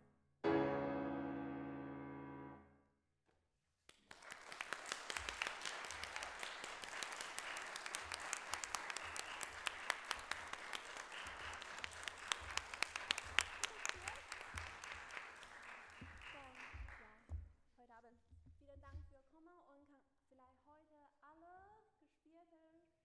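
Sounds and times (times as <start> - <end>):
piano chord ringing: 0.4 - 2.8
audience applause: 3.9 - 17.2.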